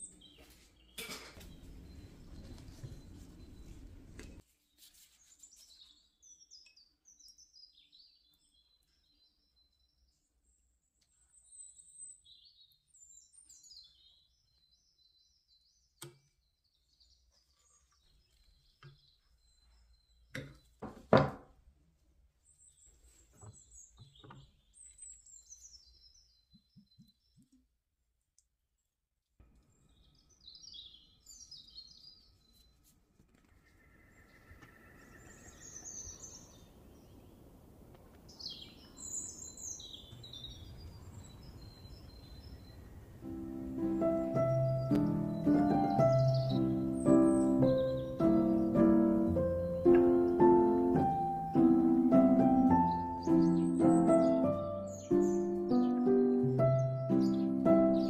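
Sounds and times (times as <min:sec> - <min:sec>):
small songbirds chirping: 0:00.0 - 0:20.9, 0:22.4 - 0:27.8, 0:29.4 - 0:58.0
soft low knocks: 0:43.4 - 0:54.5.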